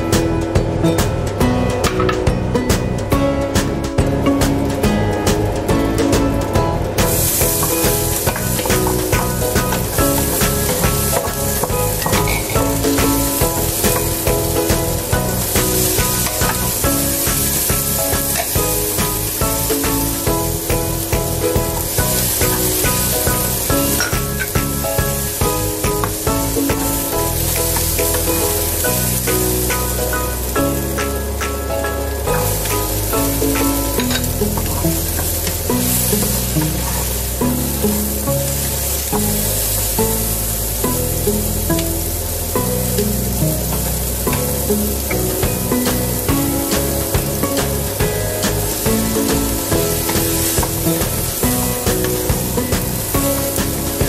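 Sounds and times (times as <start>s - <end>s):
background music with beat: 0.0s - 54.0s
onion sizzling in pan: 0.0s - 54.0s
wooden spatula stirring: 45.3s - 54.0s.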